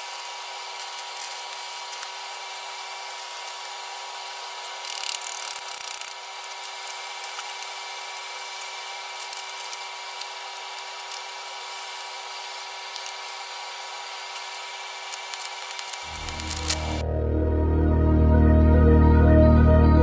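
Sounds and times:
steady shop hum: 0:09.8 - 0:20.0.

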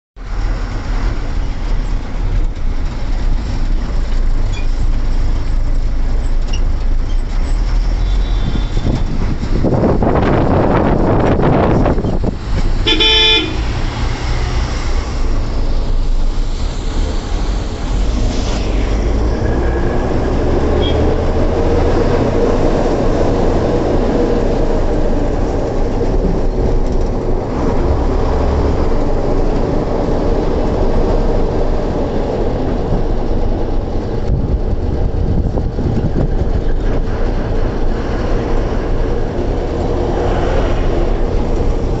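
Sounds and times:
truck engine and road noise: 0:00.2 - 0:42.0
truck horn blast: 0:08.0 - 0:09.1, 0:12.8 - 0:14.1, 0:20.7 - 0:21.3.

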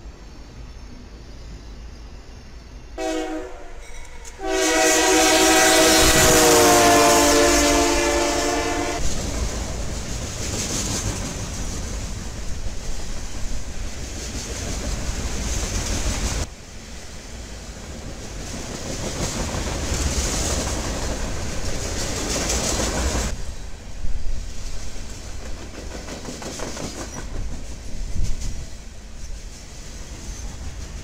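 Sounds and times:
freight train rolling past: 0:00.0 - 0:31.0
wheels clicking over rail joints: 0:25.0 - 0:31.0.

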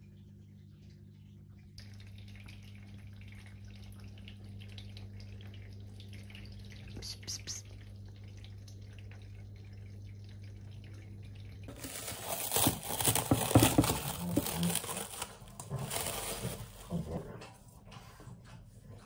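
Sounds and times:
plastic wrap crinkling: 0:11.7 - 0:17.2.

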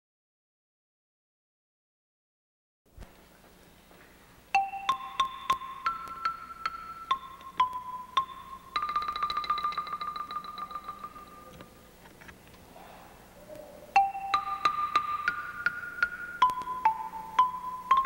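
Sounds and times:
marimba notes: 0:04.5 - 0:11.8, 0:13.9 - 0:18.0.

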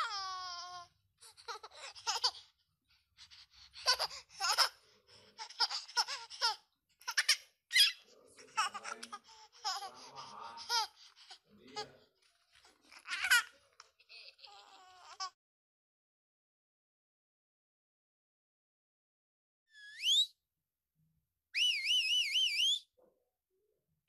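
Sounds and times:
baby giggling: 0:00.0 - 0:02.5, 0:03.8 - 0:12.0, 0:12.6 - 0:15.4.

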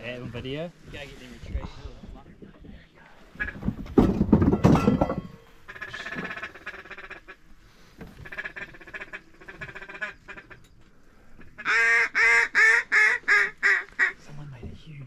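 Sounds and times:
ducks quacking: 0:03.3 - 0:03.8, 0:05.5 - 0:10.7, 0:11.4 - 0:14.2.

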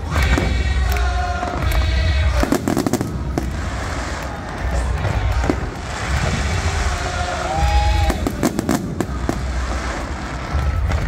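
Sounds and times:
firework crackles: 0:00.0 - 0:11.0
firework booms: 0:01.4 - 0:11.0
high firework whistle: 0:02.4 - 0:11.0.

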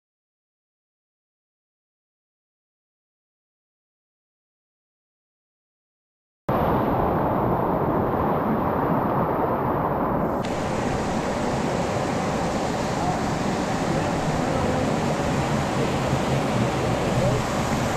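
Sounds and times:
creek whitewater rushing: 0:06.5 - 0:17.9
small waterfall splashing: 0:10.3 - 0:17.9.

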